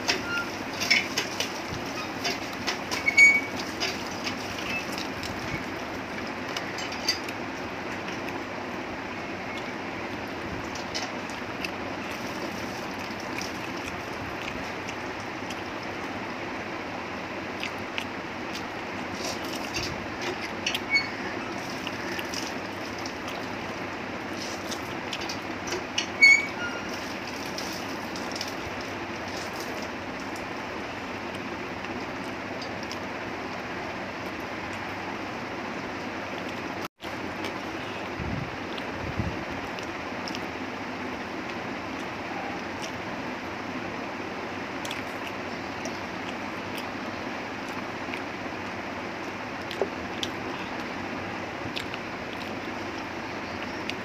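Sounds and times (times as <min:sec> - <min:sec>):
chewing and wet mouth smacks: 0:11.2 - 0:15.8, 0:17.5 - 0:19.7, 0:21.6 - 0:23.6, 0:39.6 - 0:40.5, 0:44.8 - 0:47.0, 0:47.6 - 0:48.7, 0:49.6 - 0:51.0, 0:51.7 - 0:54.0.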